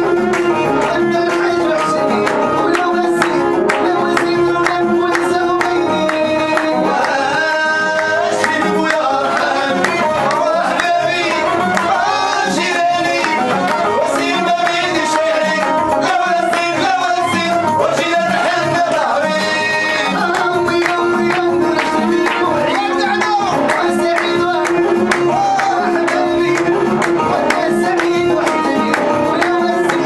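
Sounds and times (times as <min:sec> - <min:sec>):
violin: 0:00.0 - 0:16.1
electronic keyboard: 0:00.0 - 0:30.0
percussion beat: 0:00.0 - 0:30.0
person singing: 0:00.0 - 0:30.0.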